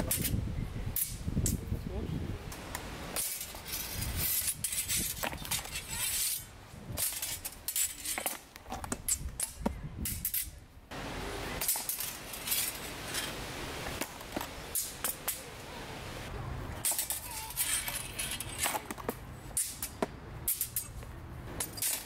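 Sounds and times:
rustling: 0:02.6 - 0:09.6, 0:11.5 - 0:22.0
steel swords clinking: 0:19.6 - 0:21.0, 0:21.6 - 0:22.0.

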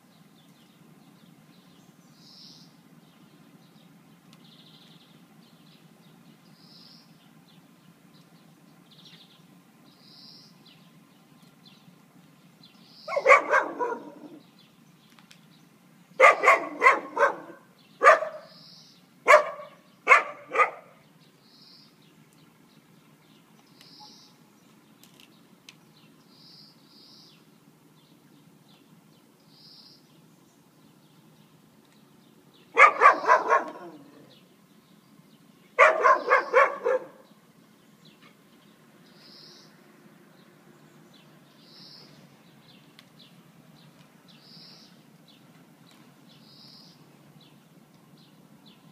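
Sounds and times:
dog barking: 0:13.1 - 0:14.4, 0:16.2 - 0:18.6, 0:19.2 - 0:21.0, 0:32.7 - 0:34.2, 0:35.8 - 0:37.3.

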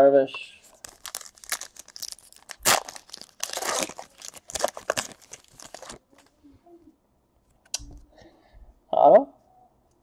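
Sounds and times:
foil wrapper tearing and crinkling: 0:00.7 - 0:06.0.

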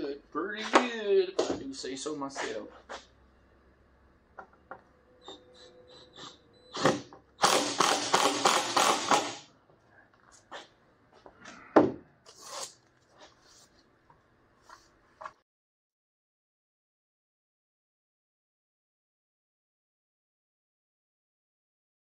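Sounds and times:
harsh rattling noise: 0:07.4 - 0:09.4.

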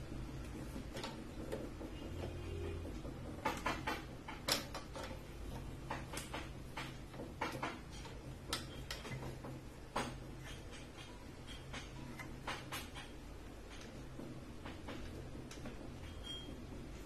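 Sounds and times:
machine humming: 0:00.0 - 0:04.1.

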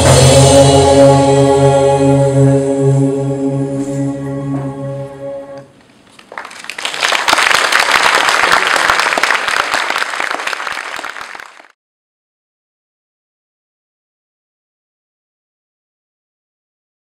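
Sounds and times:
recorded music: 0:00.0 - 0:05.8
audience applauding: 0:06.1 - 0:11.8.

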